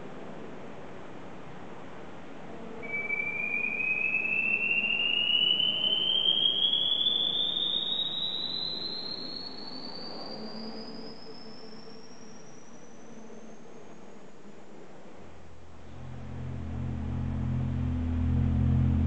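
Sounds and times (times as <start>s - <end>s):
faint background noise: 0.0s - 19.0s
electronic tone gliding upward: 15.8s - 19.0s.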